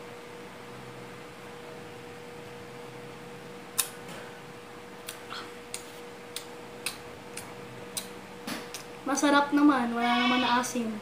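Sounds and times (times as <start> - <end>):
faint steady hum: 0.0 - 11.0
wet mouth clicks and smacks: 3.8 - 4.0, 5.0 - 8.1.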